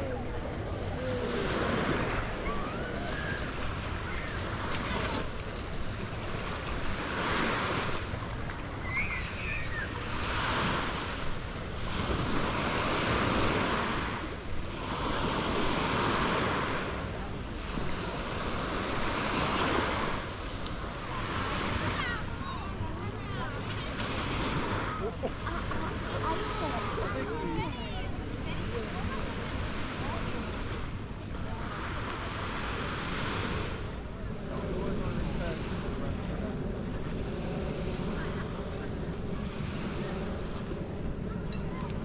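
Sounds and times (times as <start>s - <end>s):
small waves on sandy shore: 0.0s - 42.0s.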